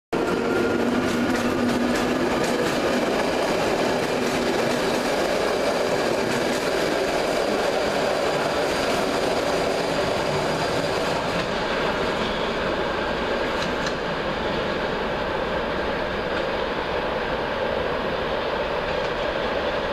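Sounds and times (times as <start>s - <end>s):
train wheels clicking over rail joints: 0.2s - 12.4s, 13.4s - 14.8s
train rumble: 0.2s - 19.9s.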